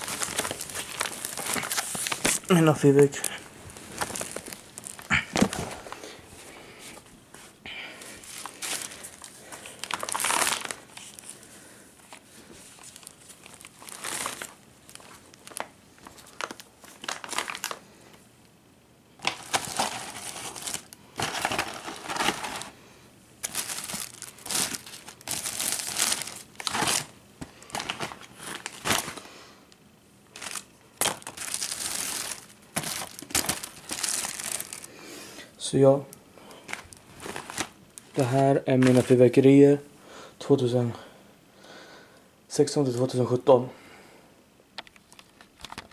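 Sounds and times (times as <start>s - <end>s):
plastic bag crinkling: 0.0s - 6.1s, 8.2s - 17.9s, 19.2s - 22.8s, 23.4s - 29.3s, 30.3s - 35.0s, 36.5s - 39.4s.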